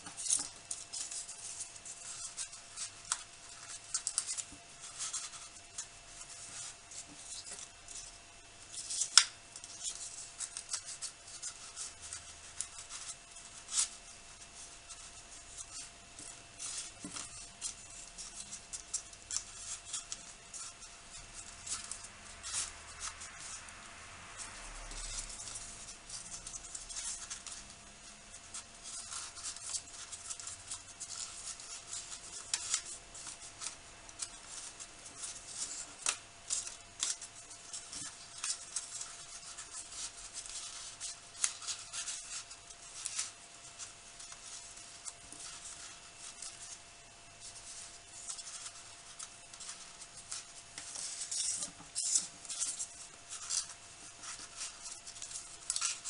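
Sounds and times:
paper rustling and crinkling: 0:00.0 - 0:56.0.

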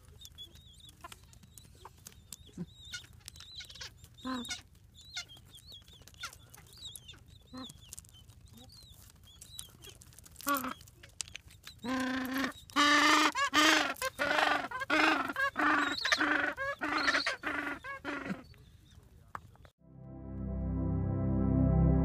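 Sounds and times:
penguins calling: 0:11.8 - 0:18.5.

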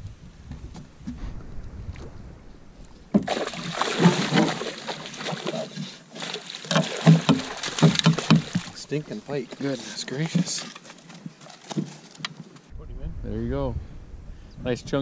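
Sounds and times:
fish splashing in water: 0:03.1 - 0:09.4.

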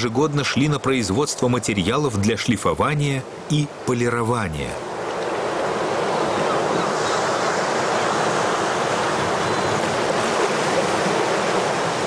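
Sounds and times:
waves washing over pebbles: 0:04.9 - 0:12.0.

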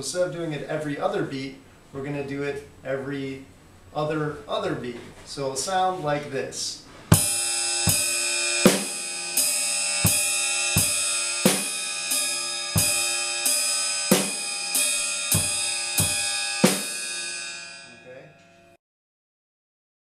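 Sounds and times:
bass drum: 0:07.1 - 0:17.1
washy hi-hat and cymbal: 0:07.1 - 0:18.1
snare drum: 0:07.2 - 0:09.0, 0:10.8 - 0:11.8, 0:15.4 - 0:16.9.

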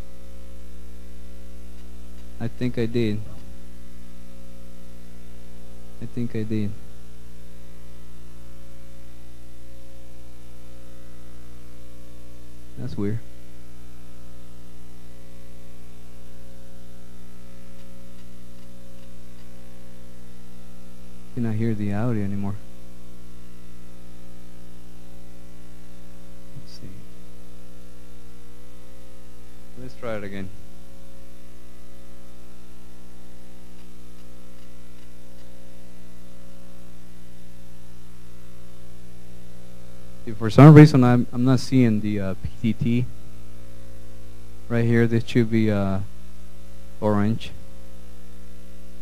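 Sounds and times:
electrical mains hum: 0:00.0 - 0:49.0
faint ticks: 0:17.7 - 0:19.6
faint hiss: 0:25.9 - 0:49.0.

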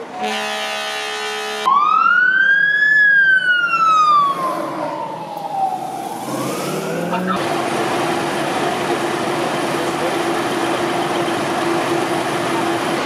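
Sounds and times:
fire truck siren wailing: 0:00.0 - 0:13.0
fire truck air horn blasting: 0:00.2 - 0:01.8.

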